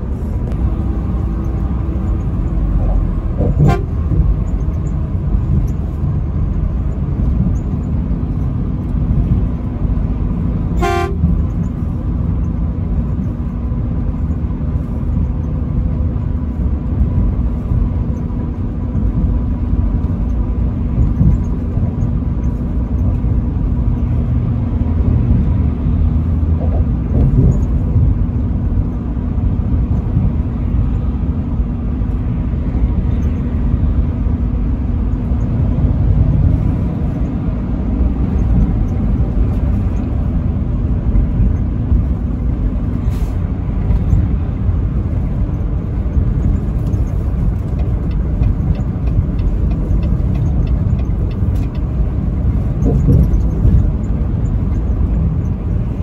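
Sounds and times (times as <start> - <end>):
truck engine and tyre rumble: 0.0 - 56.0
truck horn toots: 3.4 - 4.2, 10.7 - 11.4.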